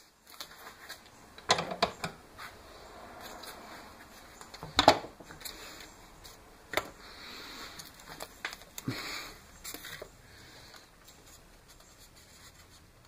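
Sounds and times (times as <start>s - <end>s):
packaging tape crackling rustles: 0.0s - 1.4s, 5.3s - 13.0s.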